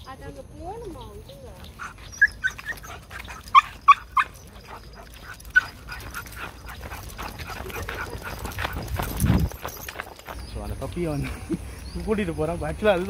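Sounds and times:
footsteps on paved path: 0:00.0 - 0:13.0
puppy yipping: 0:01.7 - 0:09.1.

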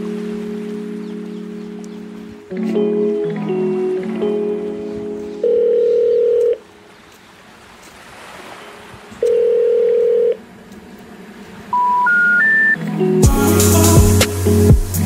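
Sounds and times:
steady low telephone tones: 0:02.5 - 0:06.8, 0:09.2 - 0:10.8
rising three-note tones: 0:10.4 - 0:14.8.

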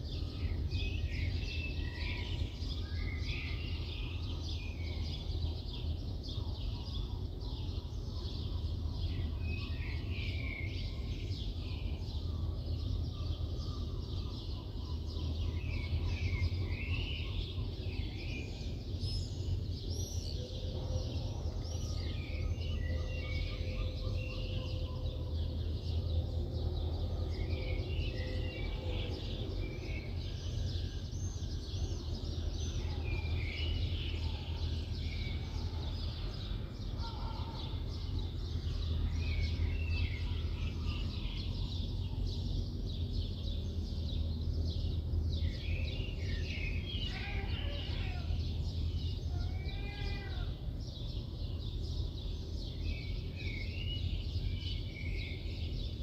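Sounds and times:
distant city traffic rumble: 0:00.0 - 0:56.0
small birds chirping: 0:00.0 - 0:56.0.

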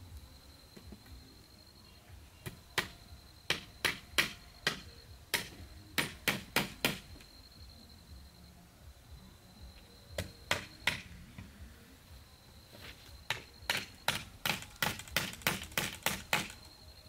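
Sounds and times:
hammer striking nail into wood: 0:02.4 - 0:07.1, 0:10.2 - 0:11.1, 0:13.3 - 0:16.6.

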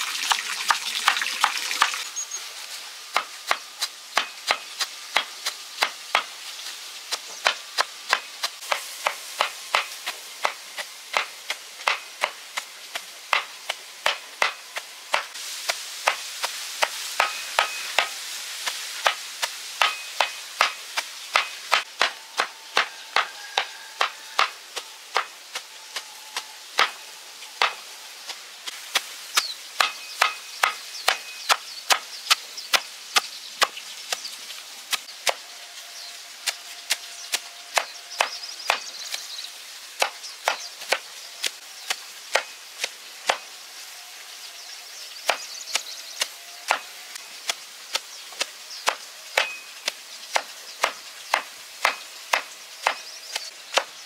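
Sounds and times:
blade chopping: 0:45.3 - 0:53.9.

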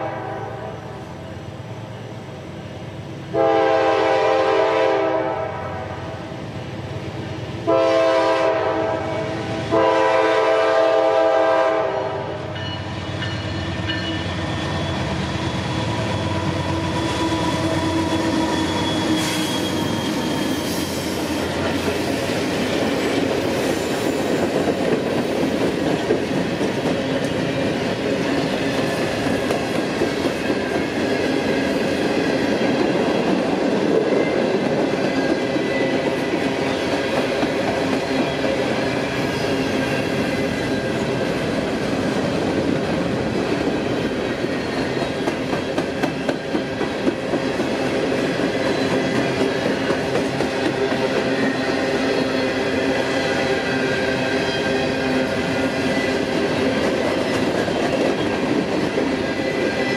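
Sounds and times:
locomotive air horn blasts: 0:00.0 - 0:00.8, 0:03.3 - 0:06.0, 0:07.7 - 0:12.4
diesel locomotives passing: 0:00.0 - 0:59.9
train wheel clatter: 0:12.6 - 0:52.6, 0:54.3 - 0:59.9.

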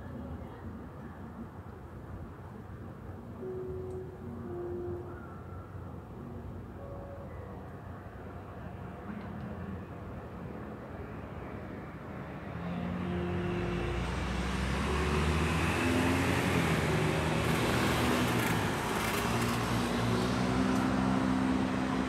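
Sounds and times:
vehicle engine hum: 0:07.7 - 0:22.0.

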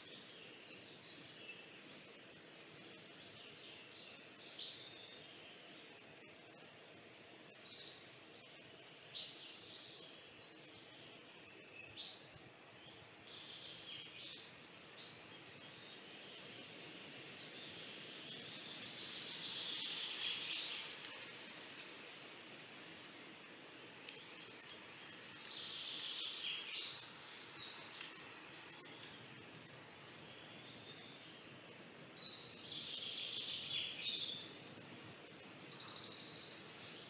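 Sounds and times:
faint background noise: 0:00.0 - 0:37.0
hiss: 0:16.6 - 0:27.2.

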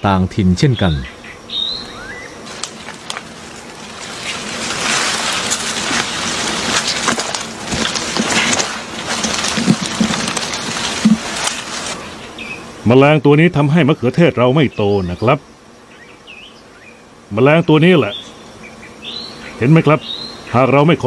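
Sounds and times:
plant leaves rustling and crackling: 0:01.9 - 0:12.2.

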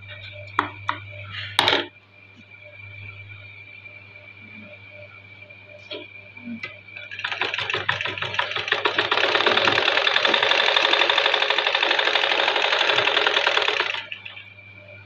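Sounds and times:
sewing machine stitching: 0:07.1 - 0:14.3.

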